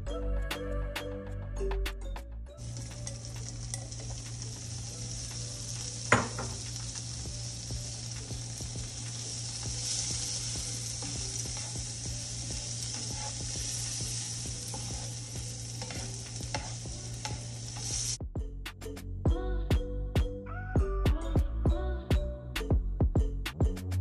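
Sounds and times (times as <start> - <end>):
music with a beat: 0.0 - 24.0
shrimp sizzling in butter: 2.6 - 18.2
spatula scraping skillet: 2.7 - 18.2.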